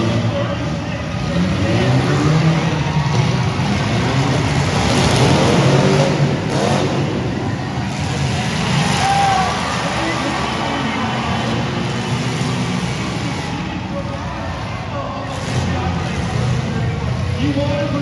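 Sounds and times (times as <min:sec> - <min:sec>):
car engines revving: 0:00.0 - 0:18.0.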